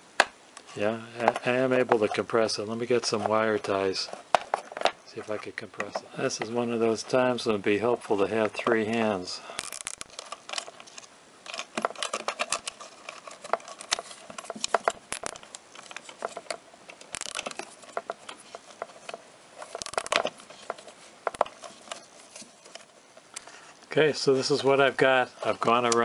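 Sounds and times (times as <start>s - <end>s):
plastic rustling: 0.7s - 26.0s
cable ties clicking: 17.0s - 17.6s.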